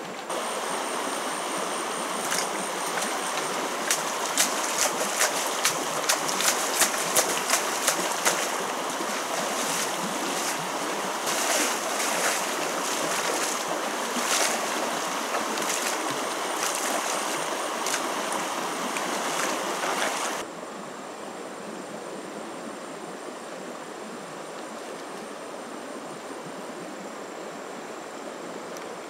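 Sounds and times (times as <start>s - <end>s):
stream water rushing: 0.0s - 20.5s
faint high whine: 0.0s - 29.0s
person wading through water: 2.0s - 20.4s
pole beating water surface: 2.2s - 20.4s.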